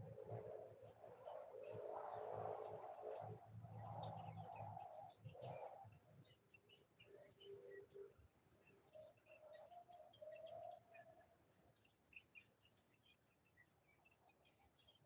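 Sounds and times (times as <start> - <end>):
high-pitched insect trill: 0.0 - 15.0.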